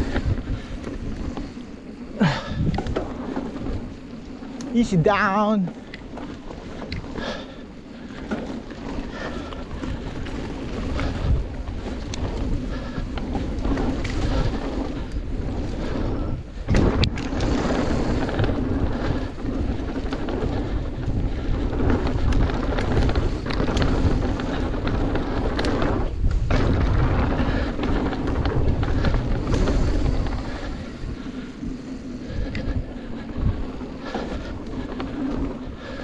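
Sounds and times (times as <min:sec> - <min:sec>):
wind on microphone: 0:00.0 - 0:07.6, 0:08.4 - 0:36.0
bike rattling: 0:00.0 - 0:36.0
bike tyres rolling on dirt: 0:00.0 - 0:36.0.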